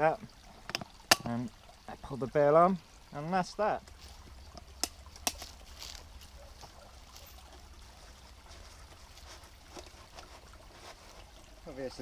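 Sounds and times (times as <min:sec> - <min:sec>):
stream trickling: 0:00.0 - 0:12.0
rustling and ticking: 0:03.8 - 0:11.6.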